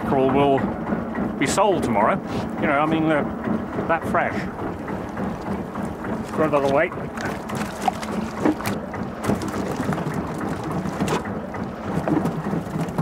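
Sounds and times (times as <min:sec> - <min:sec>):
boat engine hum: 0:00.0 - 0:13.0
sea wash: 0:00.0 - 0:13.0
fish knocking in boat: 0:03.5 - 0:13.0.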